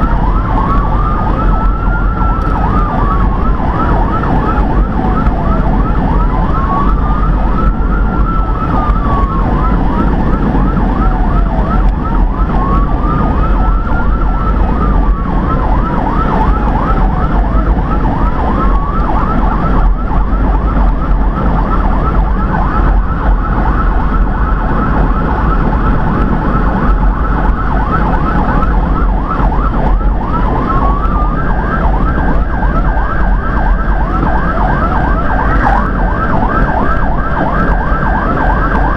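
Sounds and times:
road and engine rumble: 0:00.0 - 0:38.9
siren chirping yelp: 0:00.0 - 0:38.9
siren wail: 0:00.0 - 0:38.9.

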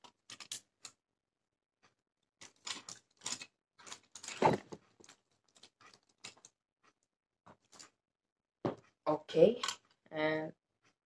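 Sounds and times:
plastic clicks and rattles: 0:00.0 - 0:01.0, 0:02.4 - 0:07.0, 0:09.5 - 0:10.0.

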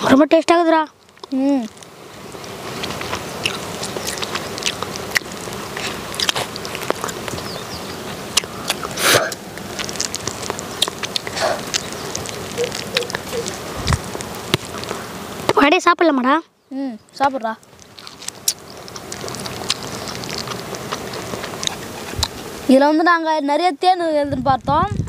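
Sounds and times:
chewing honeycomb: 0:00.0 - 0:15.8, 0:17.0 - 0:23.1
rustle: 0:00.0 - 0:25.0
sticky clicks and crackles: 0:00.9 - 0:07.6, 0:08.4 - 0:15.7, 0:17.1 - 0:22.4.

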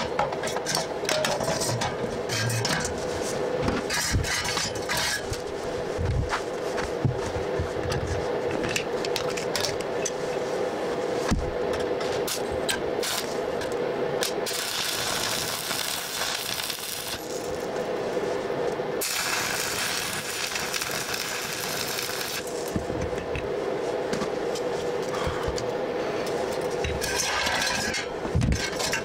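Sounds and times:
steady hum: 0:00.0 - 0:29.0
welding arc sizzling: 0:12.1 - 0:23.4.

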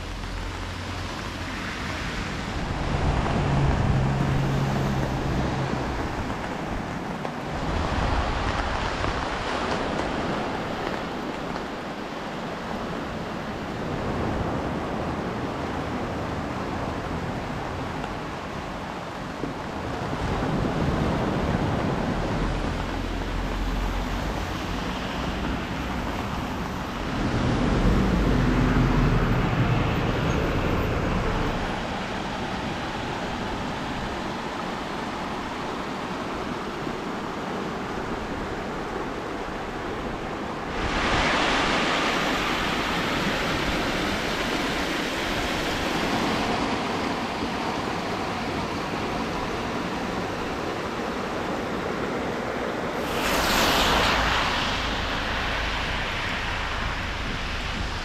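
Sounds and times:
rushing water hiss: 0:00.0 - 0:58.0
surf washing onto shore: 0:00.0 - 0:58.0
wind buffeting microphone: 0:01.3 - 0:35.6.

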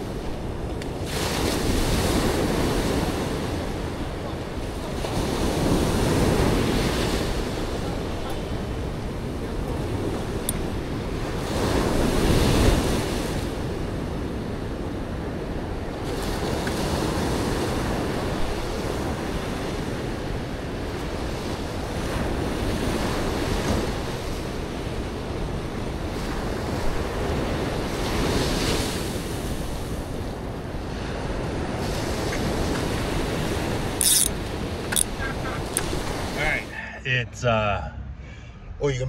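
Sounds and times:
ocean surf breaking: 0:00.0 - 0:38.0.

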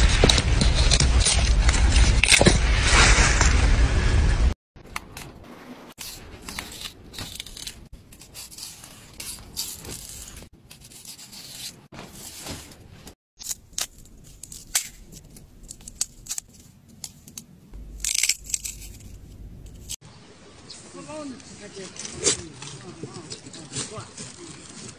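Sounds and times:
knife slicing radish: 0:06.0 - 0:11.8.

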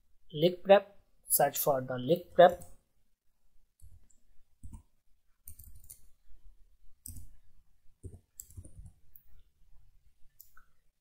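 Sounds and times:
computer keys typing: 0:03.8 - 0:06.2, 0:07.0 - 0:09.4.

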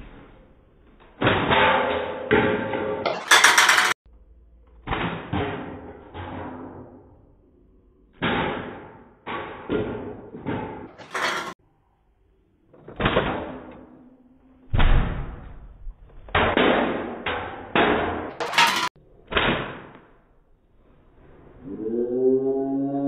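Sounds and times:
sharp bangs and knocks: 0:01.1 - 0:04.0, 0:08.2 - 0:11.6, 0:16.3 - 0:20.0.

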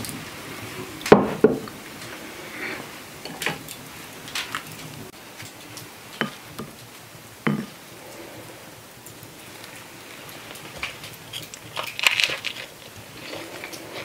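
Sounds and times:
bread tapping a bowl: 0:07.5 - 0:07.7.

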